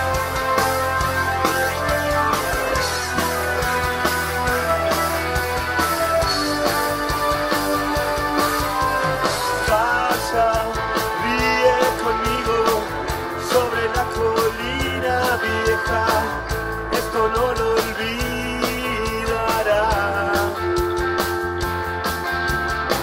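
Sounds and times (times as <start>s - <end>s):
drum kit beat: 0.0s - 23.0s
electric guitars: 0.0s - 23.0s.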